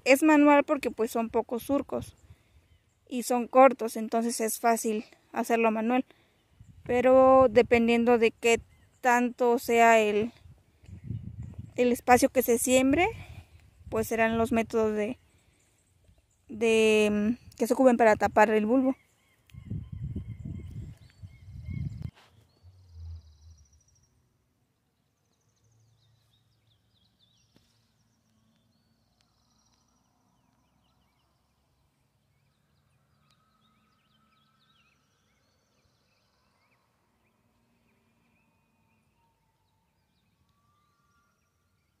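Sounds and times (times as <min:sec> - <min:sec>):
bird chirps and calls: 0:00.2 - 0:24.2
low rumble on microphone: 0:10.3 - 0:11.8, 0:19.5 - 0:24.1.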